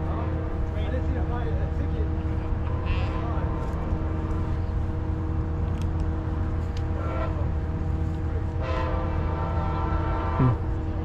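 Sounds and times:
train horn blasts: 0.0s - 0.8s, 6.1s - 10.7s
train engine drone: 0.0s - 11.0s.

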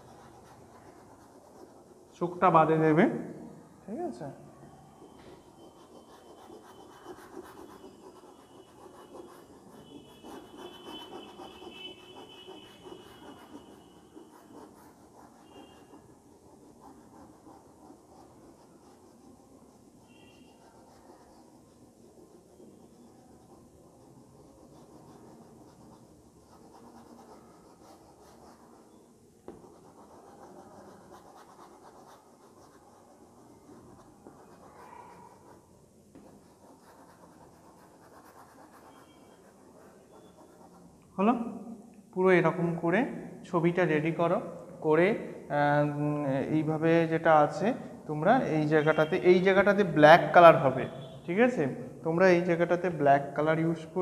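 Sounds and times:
chalk scratching on blackboard: 0.0s - 3.0s, 4.1s - 41.7s, 45.1s - 54.0s
sharp chalk tap: 29.4s - 30.1s.

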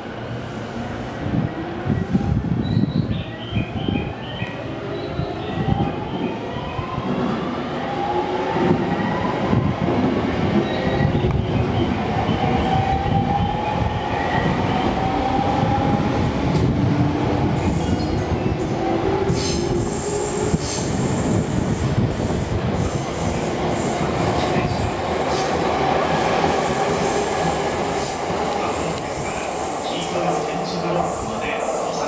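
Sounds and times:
train wheels clattering on rail: 15.8s - 32.0s.

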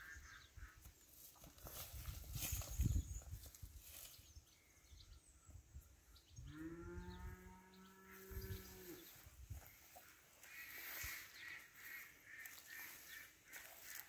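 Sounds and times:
cow mooing: 6.5s - 9.1s.

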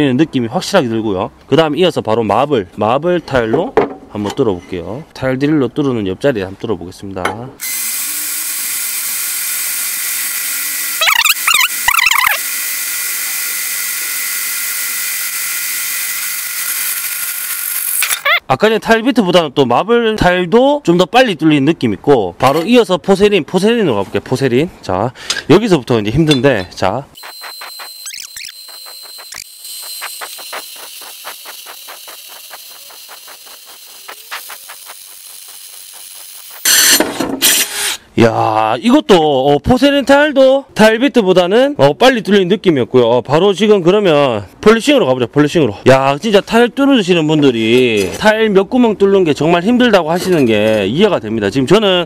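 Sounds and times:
drill grinding into tile: 7.6s - 18.4s, 27.2s - 38.0s
high-pitched drill bit squeals: 7.6s - 18.4s, 27.2s - 38.0s.

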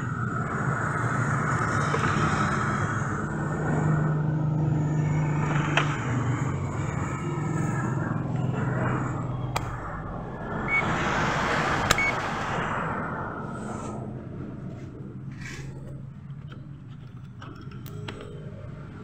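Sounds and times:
vehicle engine running: 0.0s - 19.0s
sharp clicks: 11.8s - 12.2s.

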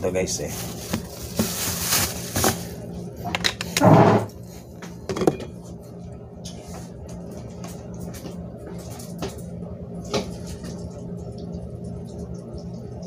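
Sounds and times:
steady low hum: 0.0s - 13.0s
plastic bag crinkling: 0.3s - 2.8s.

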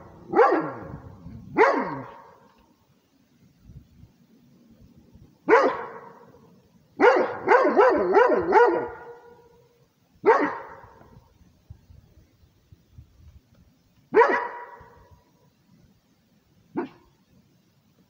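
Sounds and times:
dog barking: 0.3s - 2.5s, 5.5s - 6.4s, 7.0s - 9.5s, 10.2s - 11.0s, 14.1s - 15.1s, 16.7s - 17.1s.

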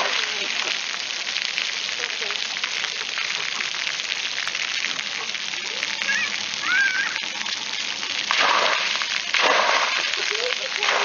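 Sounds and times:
water gushing: 0.0s - 11.0s
water jets spraying on concrete: 0.0s - 11.0s.

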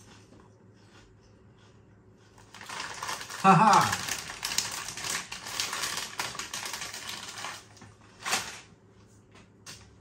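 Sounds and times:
crisp packet crinkling: 2.4s - 8.7s.

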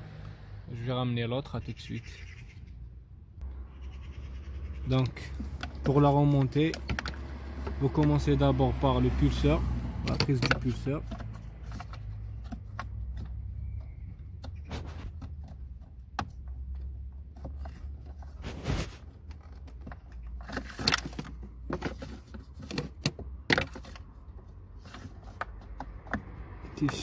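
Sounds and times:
hands handling plastic parts: 4.9s - 9.4s, 10.0s - 27.0s.

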